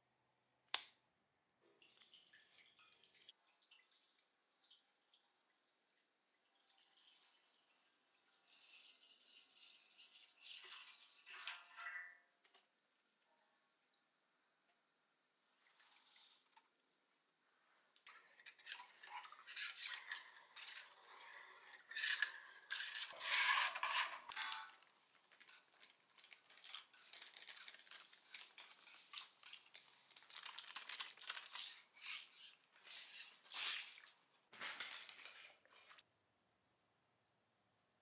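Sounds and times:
gritty rustling and scraping: 18.3 - 28.6.

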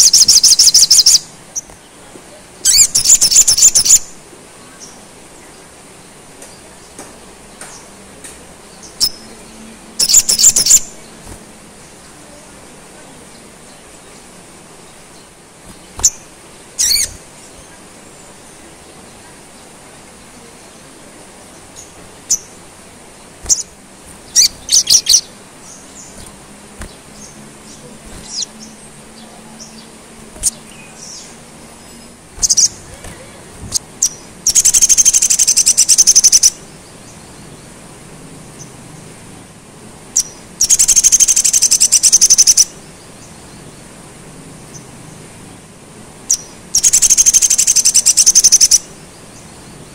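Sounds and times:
bird chirping: 0.0 - 5.7, 8.6 - 37.8, 40.1 - 43.9, 46.3 - 49.9
rapid run of bird notes: 8.9 - 36.5.

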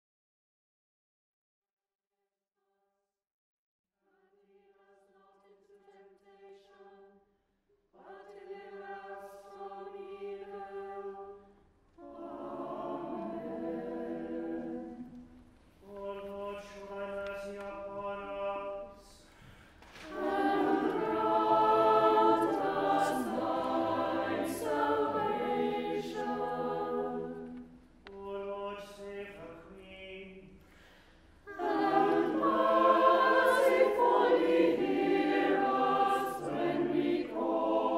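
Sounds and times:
choir singing in harmony: 4.8 - 7.2, 7.9 - 19.3, 20.0 - 30.5, 31.4 - 37.9
cantor chanting: 15.8 - 19.2.

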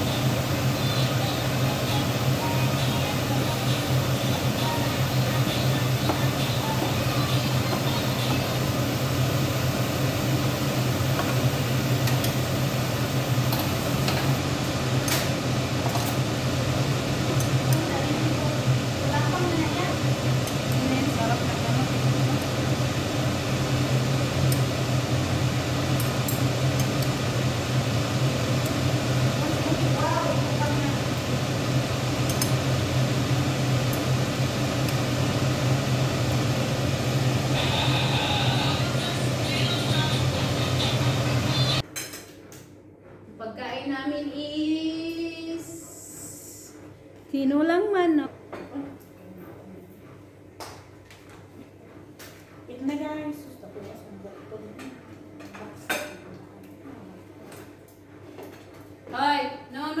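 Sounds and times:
appliance motor humming: 0.0 - 41.8.

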